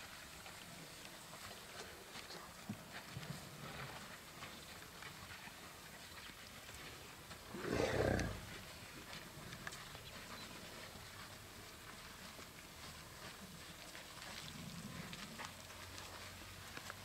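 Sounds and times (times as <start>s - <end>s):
elephant roar: 7.5s - 8.5s.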